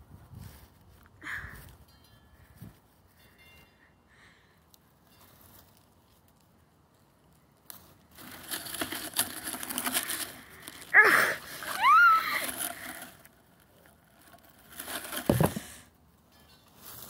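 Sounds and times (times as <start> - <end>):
dry grass rustling: 0.0 - 3.8, 4.6 - 17.0
short high cries: 10.9 - 12.9.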